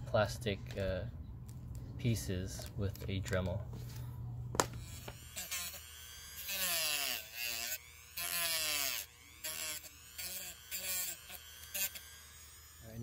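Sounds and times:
rotary tool cutting plastic: 0:04.6 - 0:13.0.

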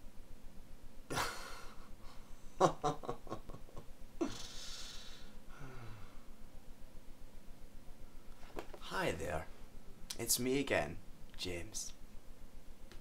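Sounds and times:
man laughing: 0:01.1 - 0:04.5.

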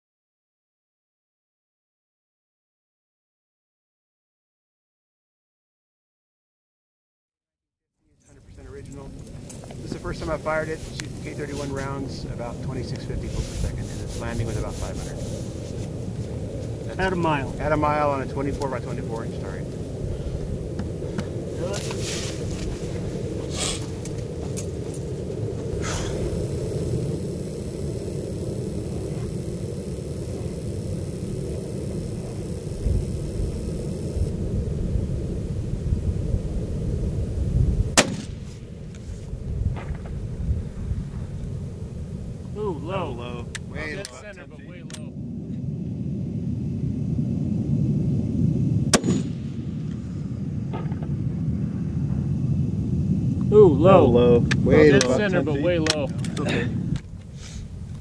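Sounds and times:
wind rumble on microphone: 0:08.2 - 0:58.0
rifle shot with echo: 0:38.0 - 0:38.6, 0:48.9 - 0:49.8.

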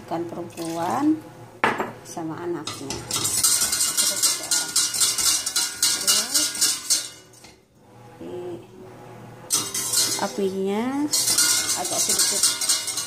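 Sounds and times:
whisk rattling in metal saucepan: 0:00.5 - 0:00.9, 0:02.6 - 0:07.5, 0:09.5 - 0:13.0.

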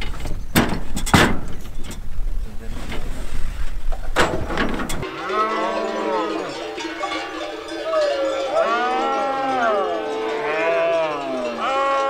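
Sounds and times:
goats bleating: 0:05.0 - 0:12.0.

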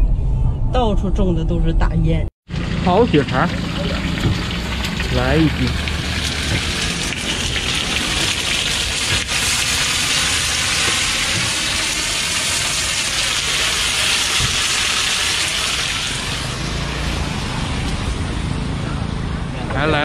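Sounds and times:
sausage sizzling in a wok: 0:03.6 - 0:18.1.

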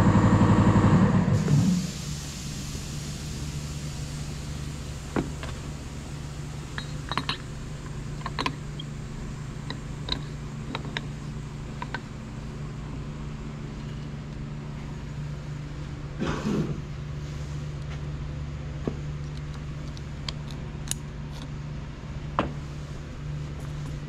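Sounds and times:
loud pulsing machine: 0:00.0 - 0:04.0
steady low hum: 0:00.0 - 0:24.0.

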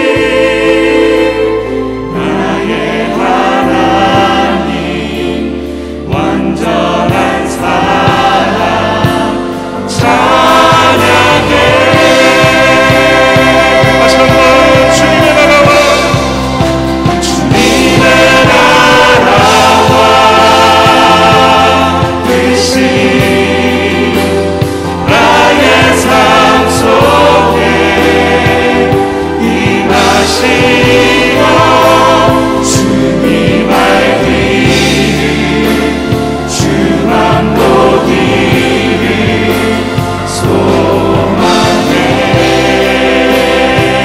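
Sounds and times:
group singing: 0:00.0 - 0:44.0
keyboard: 0:00.0 - 0:44.0
steady beat: 0:10.0 - 0:44.0.

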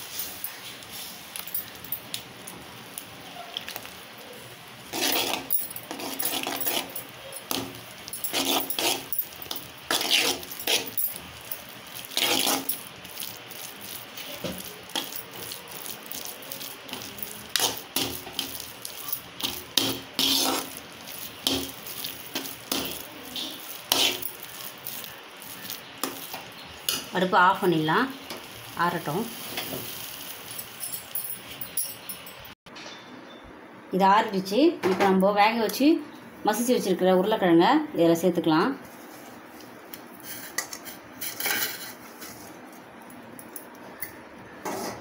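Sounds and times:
spoon scraping dough in steel pan: 0:04.9 - 0:11.2, 0:11.9 - 0:27.1, 0:40.2 - 0:42.5.

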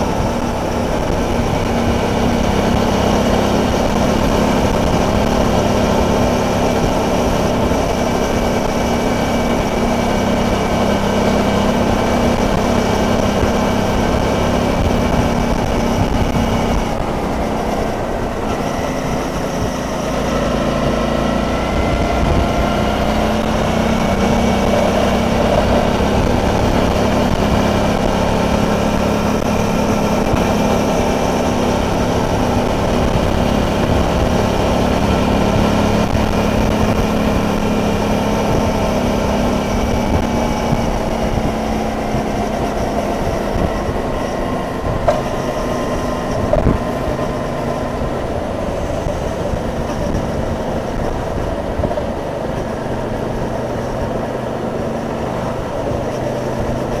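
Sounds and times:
motorcycle engine running: 0:00.0 - 0:57.0
road rumble: 0:00.0 - 0:57.0
wind: 0:00.0 - 0:57.0.

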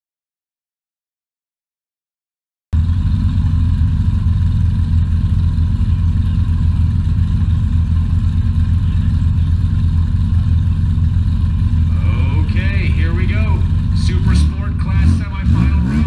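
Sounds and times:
car engines idling: 0:02.8 - 0:16.0.

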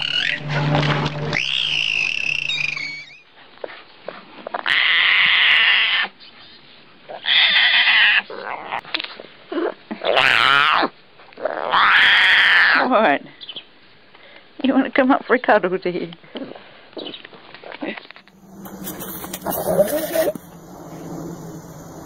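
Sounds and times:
big cat cubs crying: 0:00.0 - 0:00.5, 0:01.3 - 0:03.3, 0:04.5 - 0:06.3, 0:07.1 - 0:08.8, 0:09.5 - 0:13.0, 0:18.5 - 0:20.7
dolphin whistling and squealing: 0:00.0 - 0:00.5, 0:01.3 - 0:03.3, 0:18.7 - 0:20.5.

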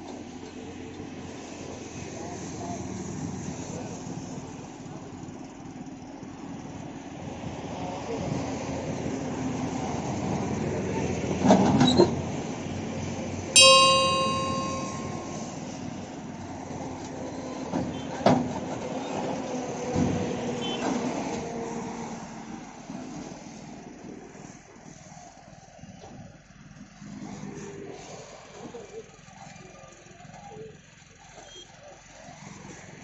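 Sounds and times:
loud metallic ring: 0:13.6 - 0:15.5.

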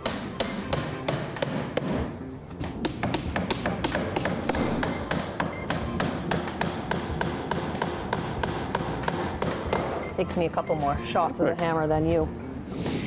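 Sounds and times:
hammer driving nails into wood: 0:02.8 - 0:09.9.

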